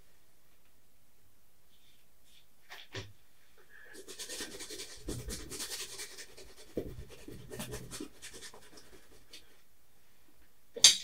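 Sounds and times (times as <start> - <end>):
paintbrush scrubbing on canvas: 3.9 - 9.6.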